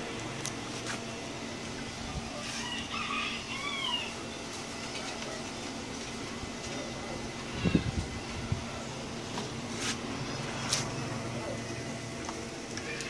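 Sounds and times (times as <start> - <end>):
steady low hum: 0.0 - 13.0
animal cries gliding up and down: 2.4 - 4.4, 12.8 - 13.0.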